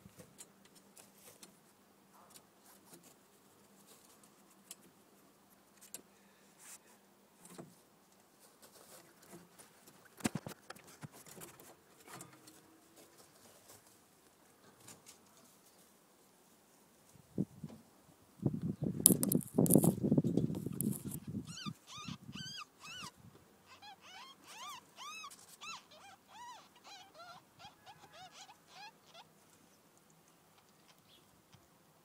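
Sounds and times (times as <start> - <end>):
rustles in wood shavings: 8.2 - 17.4
faint animal squeaks: 21.2 - 29.4.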